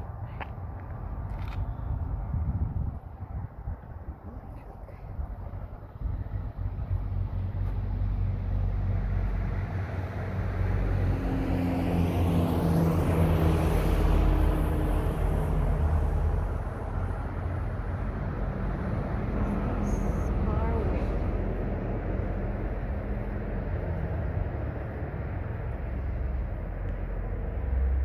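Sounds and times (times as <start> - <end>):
vehicle driving past: 6.1 - 28.0.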